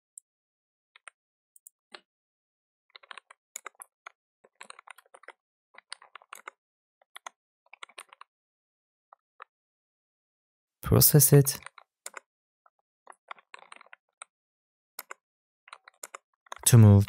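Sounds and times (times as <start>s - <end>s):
faint keyboard typing: 3.0s - 8.3s, 13.1s - 14.3s, 15.0s - 17.0s.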